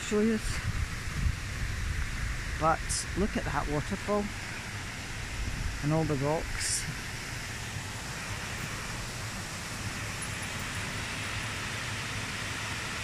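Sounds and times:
river running over rocks: 2.6s - 13.0s.

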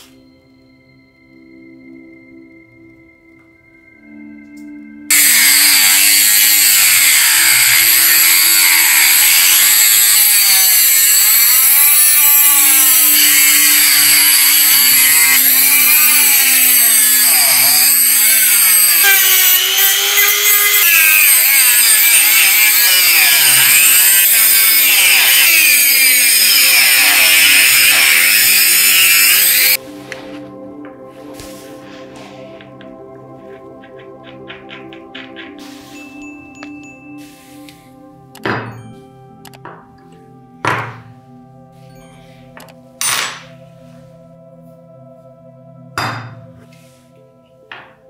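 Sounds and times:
power tool grinding screw: 5.1s - 29.8s
power tool motor tone: 5.1s - 29.8s.

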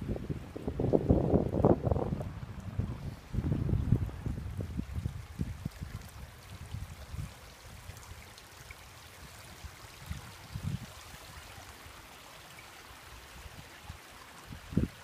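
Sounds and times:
faint hiss of water: 0.0s - 15.0s.

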